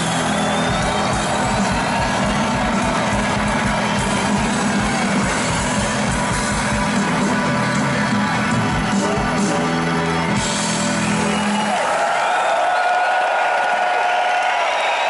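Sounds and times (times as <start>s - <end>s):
live band playing: 0.0s - 11.9s
crowd whooping and cheering: 0.0s - 15.0s.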